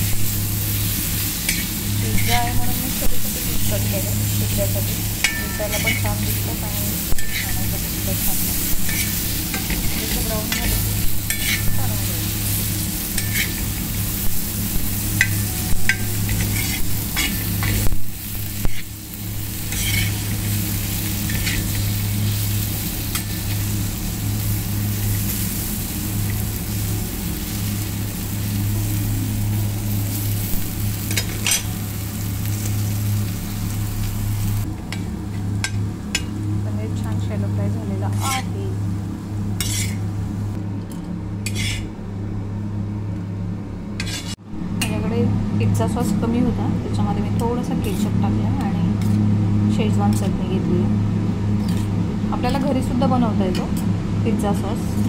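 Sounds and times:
cheese frying and sizzling: 0:00.0 - 0:40.6
metal spatula scraping pan: 0:05.2 - 0:06.4, 0:07.0 - 0:11.9, 0:13.1 - 0:13.7, 0:15.2 - 0:17.9, 0:19.6 - 0:20.6, 0:38.1 - 0:38.5, 0:39.6 - 0:40.0, 0:41.4 - 0:41.9, 0:44.0 - 0:44.4.

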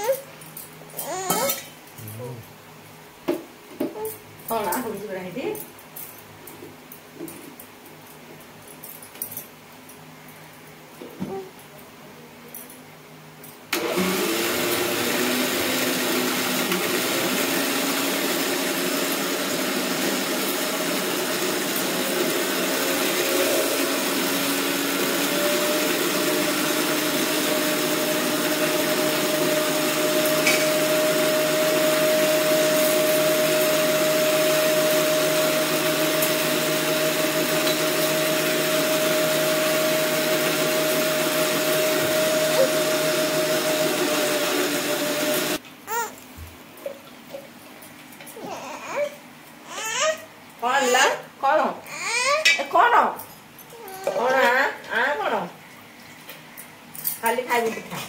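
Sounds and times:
mixer grinder whining: 0:13.7 - 0:46.2.

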